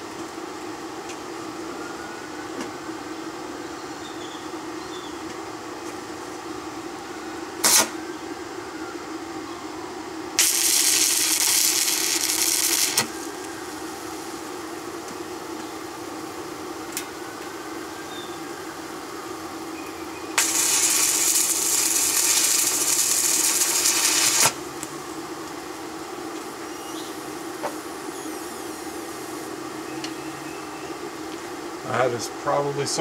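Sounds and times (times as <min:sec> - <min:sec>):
steady low hum: 0:00.0 - 0:33.0
welding arc crackling and hissing: 0:07.6 - 0:08.0, 0:10.4 - 0:17.1, 0:18.7 - 0:30.2.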